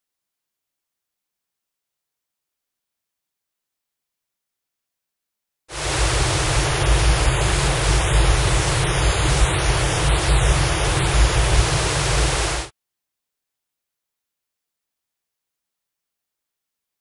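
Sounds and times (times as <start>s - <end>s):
harsh static noise: 5.7s - 12.7s
deep rumble: 5.9s - 12.7s.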